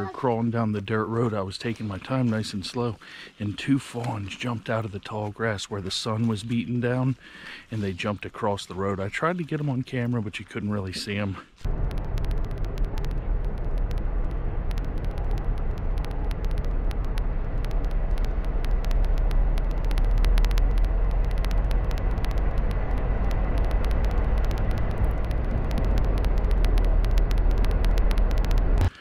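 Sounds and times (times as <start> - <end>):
heavy low rumble: 11.6 - 28.9
small ticks: 11.6 - 29.0
car road and wind noise: 11.7 - 28.8.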